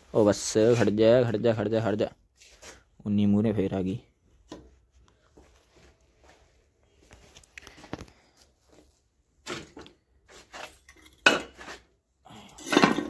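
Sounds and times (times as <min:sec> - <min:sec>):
objects clattering and scraping: 0:09.4 - 0:13.0.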